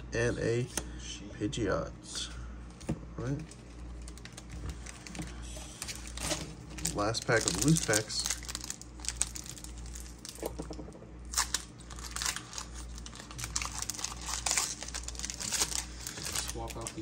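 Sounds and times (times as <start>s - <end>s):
foil wrapper crinkling and tearing: 3.4s - 10.6s, 11.2s - 17.0s.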